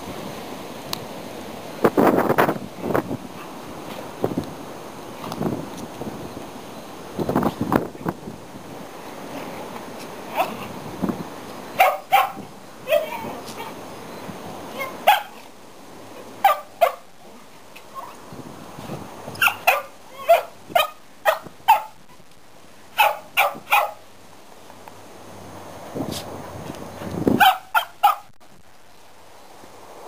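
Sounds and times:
dog barking: 11.8s - 13.7s, 14.8s - 15.4s, 16.4s - 17.1s, 19.4s - 22.0s, 23.0s - 24.0s, 27.4s - 28.3s.

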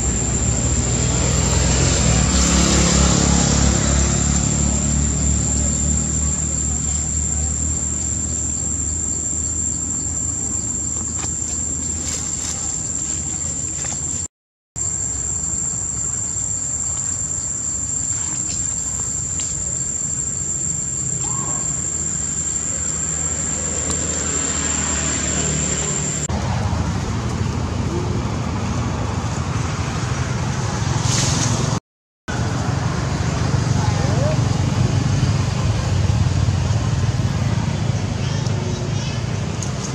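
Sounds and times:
high-pitched insect drone: 0.0s - 26.3s.

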